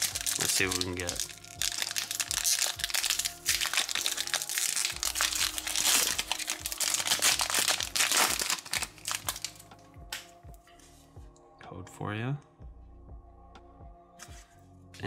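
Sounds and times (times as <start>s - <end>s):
foil wrapper crinkling: 0.0s - 9.6s.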